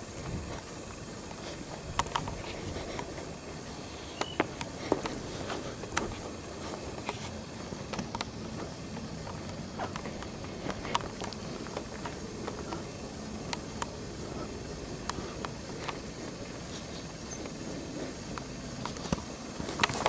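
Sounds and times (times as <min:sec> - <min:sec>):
outdoor background hiss: 0:00.0 - 0:20.0
footsteps on stone: 0:04.2 - 0:20.0.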